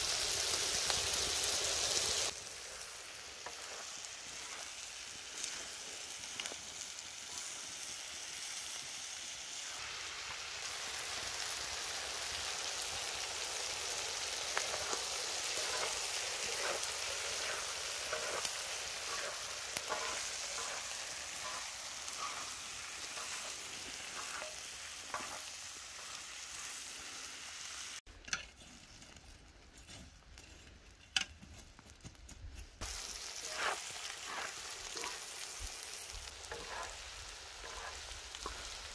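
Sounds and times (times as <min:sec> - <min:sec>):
food sizzling on a griddle: 0:00.0 - 0:28.1, 0:32.8 - 0:38.9
wooden spatulas clicking and scraping: 0:15.6 - 0:22.5.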